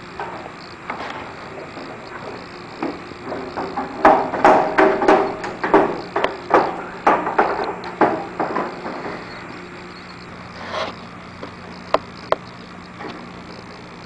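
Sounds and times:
low hum: 0.0 - 14.0
hardware knocking and clicking: 1.0 - 9.6.

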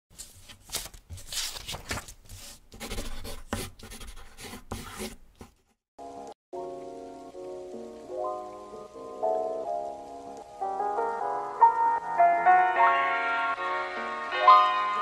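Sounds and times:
scratchy scribbling strokes: 2.3 - 5.6
music with ringing notes: 7.8 - 15.0.

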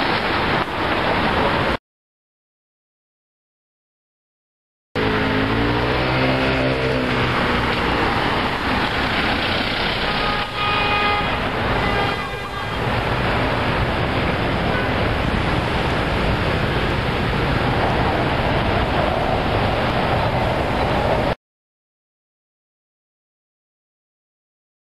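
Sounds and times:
road traffic: 0.0 - 1.8, 5.0 - 21.4
passing vehicle engine: 5.0 - 10.6
vehicle horn: 10.0 - 13.0.

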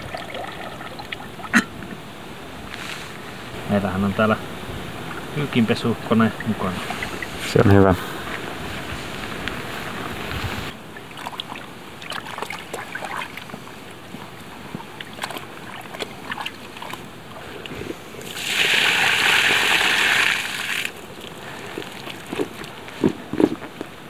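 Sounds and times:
water and clothes sloshing in bag: 5.0 - 24.0.

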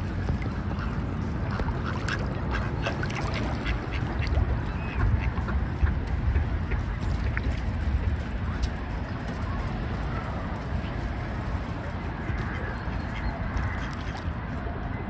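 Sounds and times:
ducks quacking: 0.4 - 7.6, 12.2 - 14.4.

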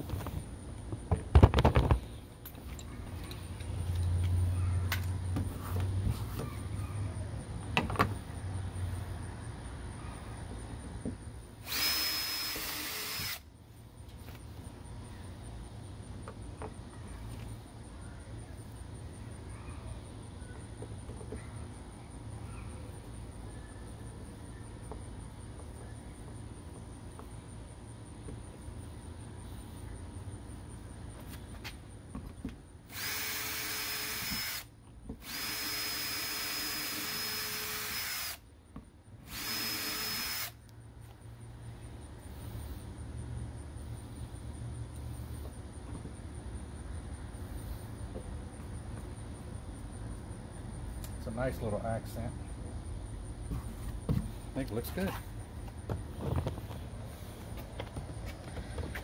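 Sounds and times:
cordless drill whining: 11.6 - 13.4, 32.9 - 38.4, 39.3 - 40.6.

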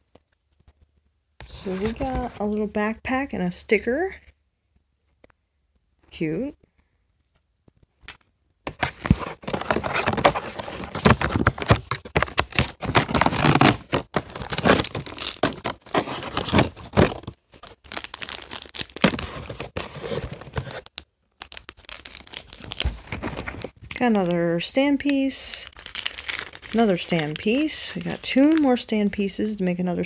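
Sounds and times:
plastic packaging crinkling and tearing: 8.1 - 24.1, 25.0 - 28.8.

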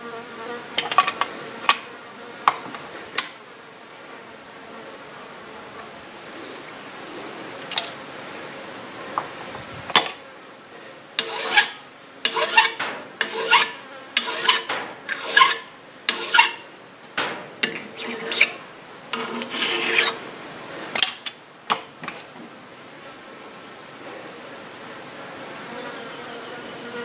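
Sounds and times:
hand file rasping on metal: 11.2 - 16.6, 17.6 - 18.6, 19.2 - 20.2.

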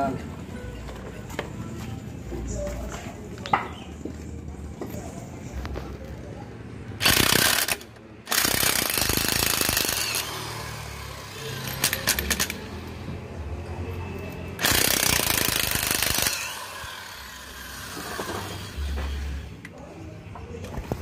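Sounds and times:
impact wrench hammering: 7.0 - 12.7, 14.6 - 19.3.

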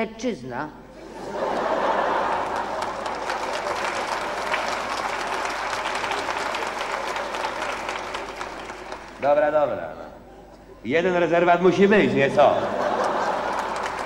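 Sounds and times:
audience applauding: 1.3 - 9.3, 12.8 - 14.0.

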